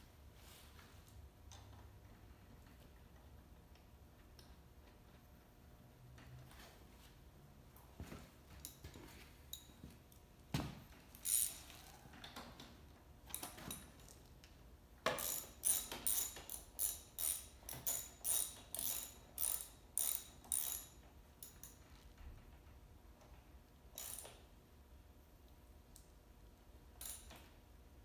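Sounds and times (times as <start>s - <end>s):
tools knocking and clicking: 10.6s - 14.2s, 15.0s - 21.9s, 24.0s - 24.4s, 27.0s - 27.5s
ratchet wrench clicking: 11.2s - 11.6s, 15.1s - 21.8s, 23.9s - 24.4s, 27.0s - 27.4s.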